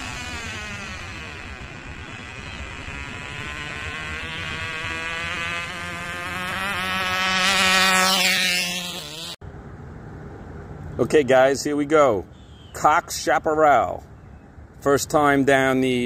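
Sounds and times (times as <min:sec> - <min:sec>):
small engine high buzzing whine: 0:00.0 - 0:09.4.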